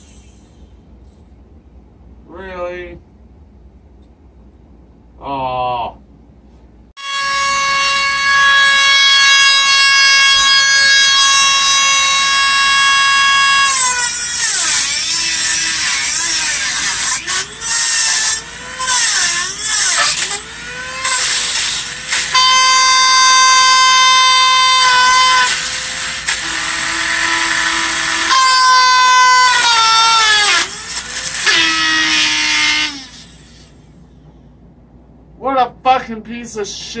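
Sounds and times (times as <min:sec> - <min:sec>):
grinder cutting metal: 0:07.0 - 0:33.8.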